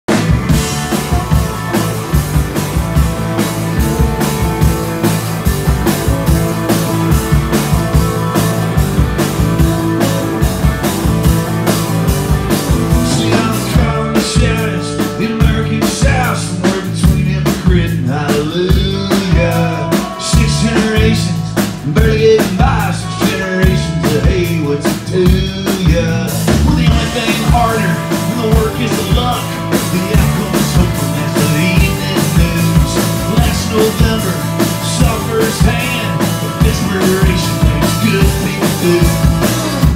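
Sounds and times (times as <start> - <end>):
drums: 0.0 - 39.9
keyboard: 0.1 - 39.9
man singing: 12.9 - 39.9.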